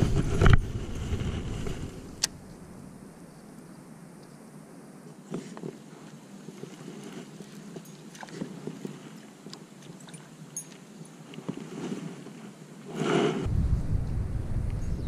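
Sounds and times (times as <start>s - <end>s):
rush of noise: 13.1s - 15.0s.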